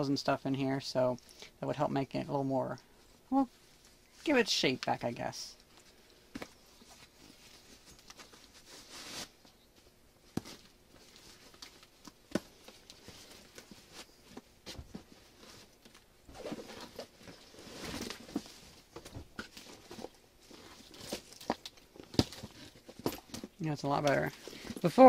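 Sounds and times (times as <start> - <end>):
fabric and plastic rustling: 5.6 - 25.0.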